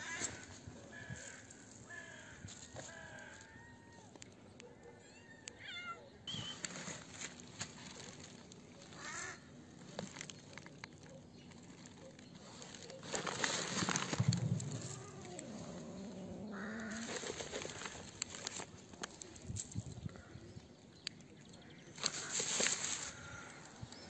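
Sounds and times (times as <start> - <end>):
wavering cat cry: 4.8 - 6.6.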